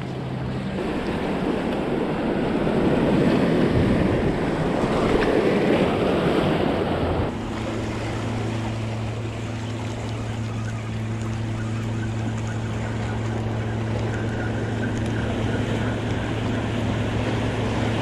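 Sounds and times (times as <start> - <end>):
steady low hum: 0.0 - 18.0
surf washing against rocks: 0.0 - 18.0
wind on the microphone: 0.7 - 8.2.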